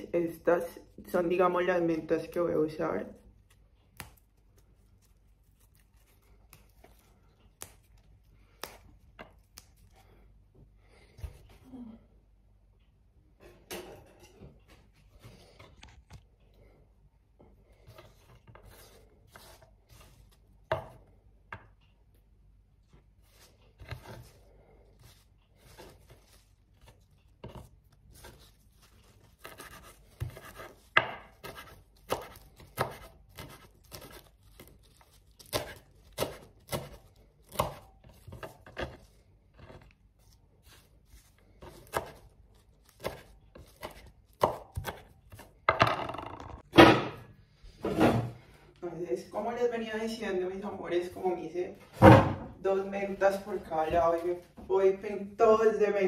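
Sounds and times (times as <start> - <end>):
knife chopping on wooden board: 20.7 - 21.7, 29.4 - 34.7, 35.4 - 39.0, 41.6 - 46.0.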